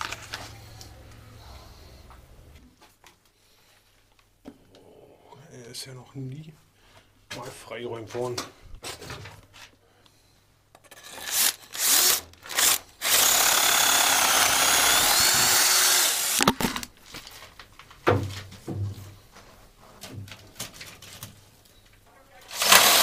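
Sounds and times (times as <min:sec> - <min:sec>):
electric drill boring into brick: 0:11.0 - 0:16.6, 0:22.5 - 0:23.0.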